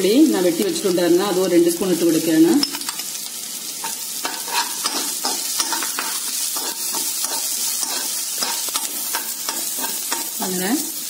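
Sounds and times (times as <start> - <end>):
vegetables sizzling in oil: 0.0 - 11.0
spatula scraping pan: 3.8 - 10.6.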